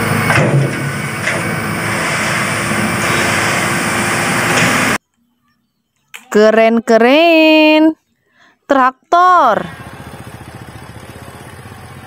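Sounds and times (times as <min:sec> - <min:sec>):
truck diesel engine running: 0:00.0 - 0:05.0, 0:09.5 - 0:12.0.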